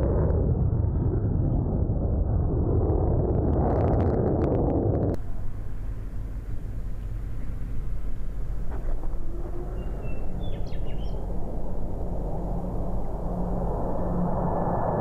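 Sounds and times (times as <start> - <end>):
jet noise flying past: 4.3 - 15.0.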